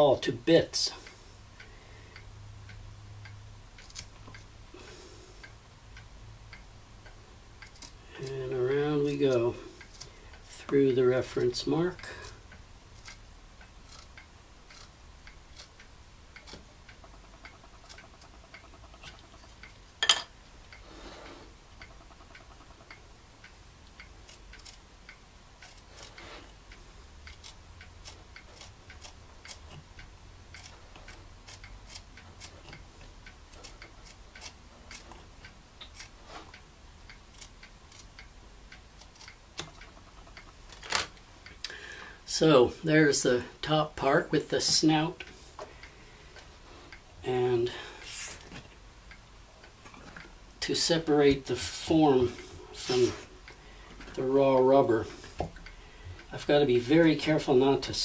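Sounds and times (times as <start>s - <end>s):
craft knife clicking through rubber: 24.3s - 24.8s, 27.3s - 29.8s, 30.6s - 32.9s, 33.5s - 35.2s, 37.3s - 38.3s.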